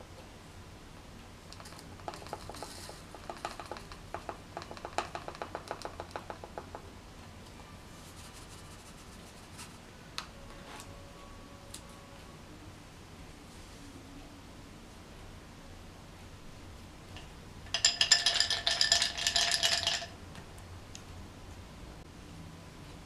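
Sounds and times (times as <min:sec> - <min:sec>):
powder pattering into plastic bowl: 0:01.6 - 0:06.7.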